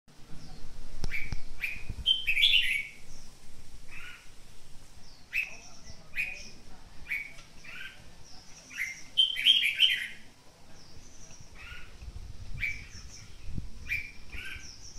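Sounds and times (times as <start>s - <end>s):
bird chirping: 0.2s - 14.9s
bird warbling song: 0.2s - 14.9s.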